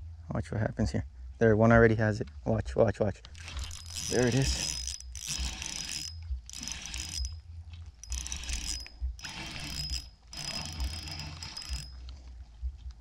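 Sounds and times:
fishing reel whirring: 3.3 - 7.4, 8.0 - 12.1.

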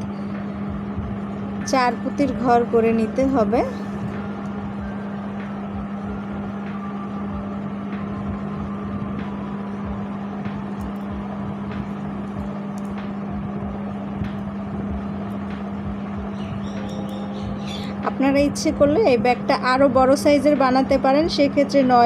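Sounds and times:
steady low hum: 0.0 - 22.0.

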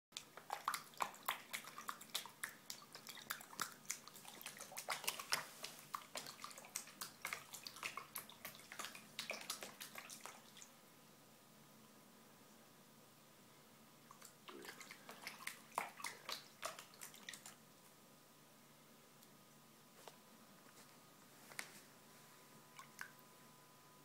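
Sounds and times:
cat splashing water in a bucket: 0.2 - 10.7, 14.1 - 17.6.

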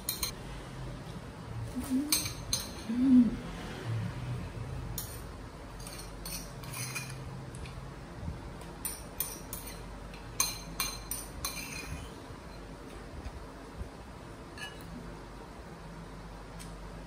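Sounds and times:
metal spoon clinking on ceramic bowl: 0.0 - 0.4, 2.1 - 2.9, 5.0 - 7.2, 8.8 - 12.6, 14.6 - 14.9.

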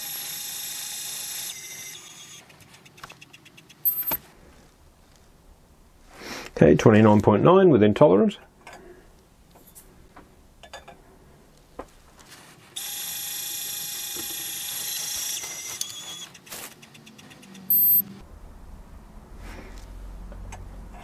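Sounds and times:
short high beep: 3.9 - 4.2, 17.7 - 18.0
powder dispenser motor whining: 12.8 - 17.0.

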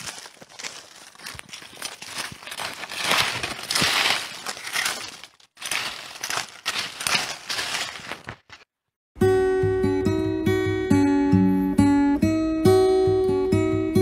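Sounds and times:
dry leaves crunching: 0.0 - 8.7.

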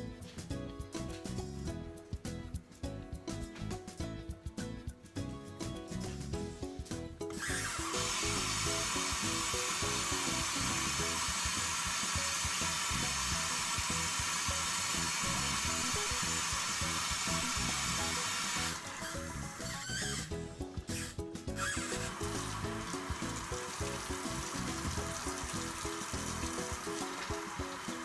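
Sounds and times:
background music: 0.0 - 28.0
loud steady hiss: 7.6 - 18.8.

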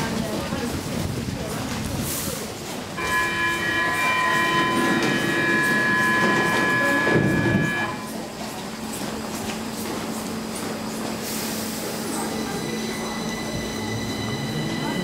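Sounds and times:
train low hum: 0.0 - 15.0
door-closing warning tone: 3.0 - 8.3
train doors thudding shut: 3.0 - 8.3.

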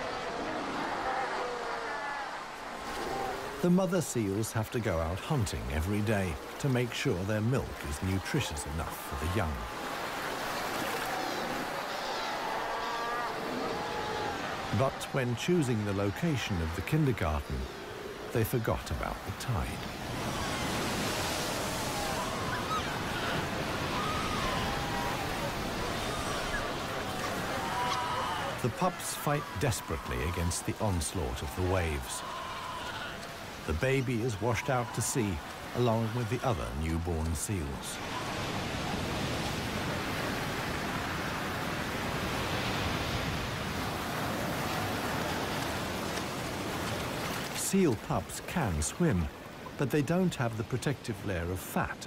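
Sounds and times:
waves breaking on a beach: 0.0 - 52.0
seal pups calling: 21.9 - 29.6.

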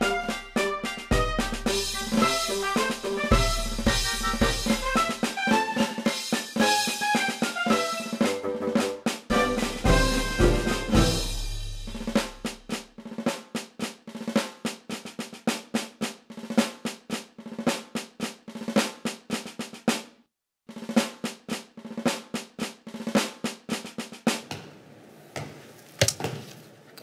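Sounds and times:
solo drum strokes: 0.0 - 12.8.

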